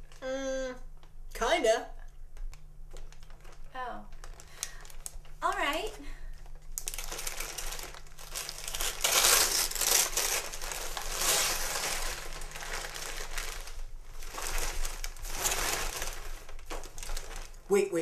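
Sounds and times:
gift wrapping crinkling: 0:02.3 - 0:18.0.

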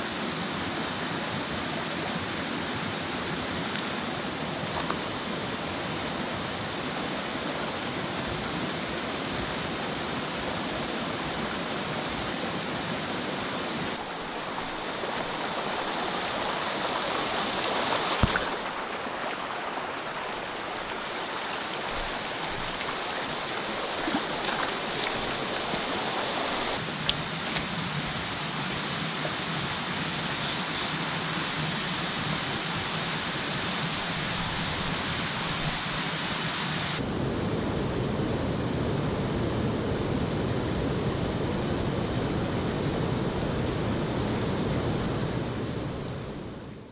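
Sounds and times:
water rushing over stones: 0:13.9 - 0:37.0.

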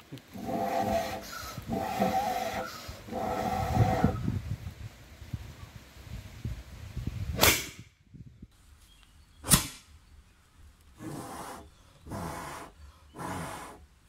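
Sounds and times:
bamboo cannon pops: 0:09.4 - 0:09.9.

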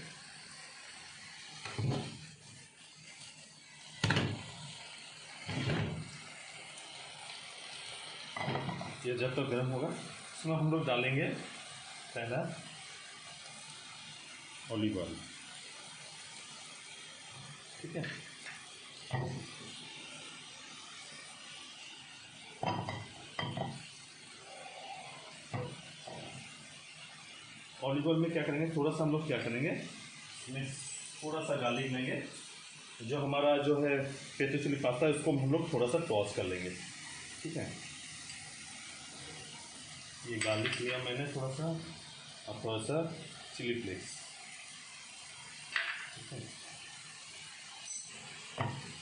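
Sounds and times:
oil hissing in a pan: 0:00.0 - 0:49.0
pan and utensils clattering: 0:08.4 - 0:09.0
pan clunking on burner grate: 0:08.4 - 0:09.0, 0:19.1 - 0:19.4, 0:22.6 - 0:23.8, 0:45.7 - 0:46.5, 0:48.6 - 0:49.0.

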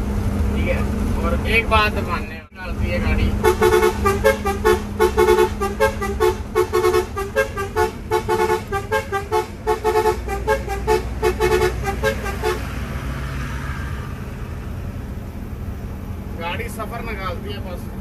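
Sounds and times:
truck engine droning: 0:00.0 - 0:18.0
musical horn playing a tune: 0:03.3 - 0:12.8.

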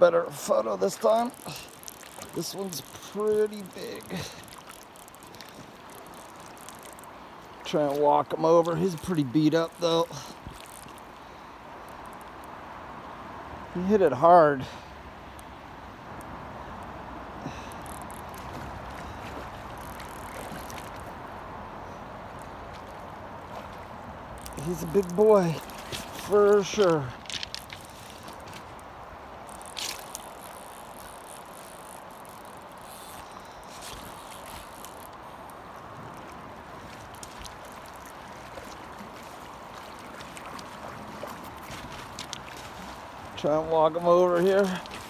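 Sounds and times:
river rushing over gravel: 0:00.0 - 0:14.9, 0:16.0 - 0:45.0
faint ticks: 0:01.1 - 0:07.2, 0:08.9 - 0:12.5, 0:17.5 - 0:21.1, 0:29.5 - 0:40.7.

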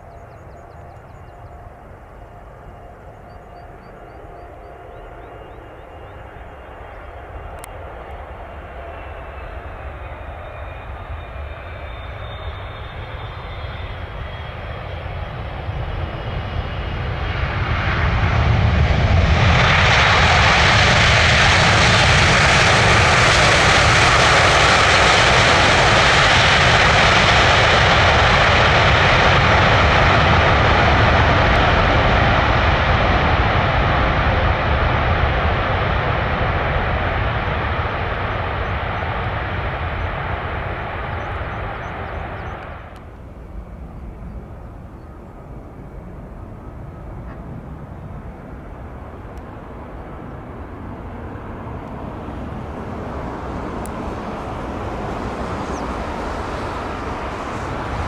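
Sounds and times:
jet airliner roar: 0:00.0 - 0:58.0
jet engine whine: 0:00.0 - 0:58.0.

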